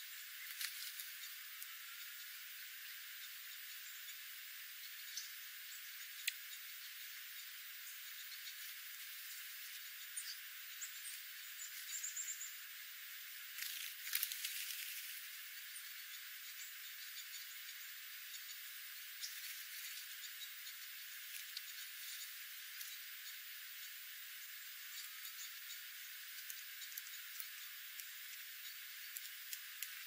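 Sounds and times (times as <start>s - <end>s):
steady hiss: 0.0s - 30.0s
bird twitter: 4.8s - 8.6s, 9.2s - 12.7s
faint clicks: 6.0s - 6.6s, 13.5s - 15.2s, 19.2s - 23.4s, 24.9s - 30.0s.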